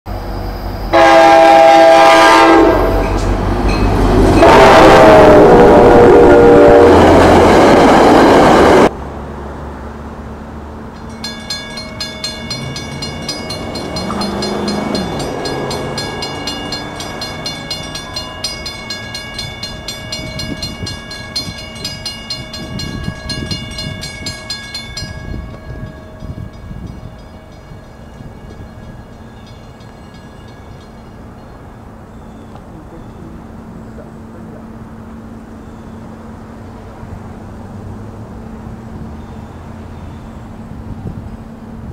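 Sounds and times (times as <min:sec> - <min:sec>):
train passing: 0:00.1 - 0:41.9
train horn: 0:00.9 - 0:03.3, 0:04.2 - 0:07.7
level crossing warning bells: 0:00.9 - 0:08.9, 0:10.9 - 0:33.6.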